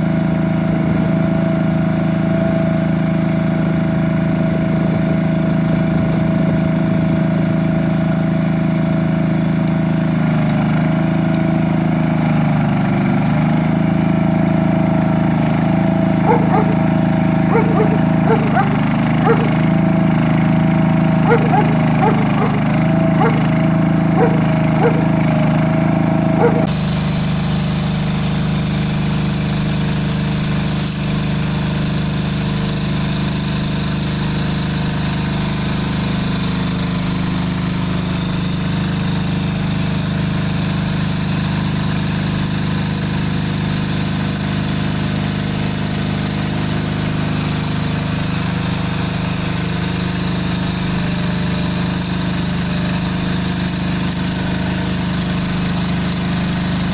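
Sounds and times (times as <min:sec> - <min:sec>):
weed cleaning machine engine: 0:00.0 - 0:56.9.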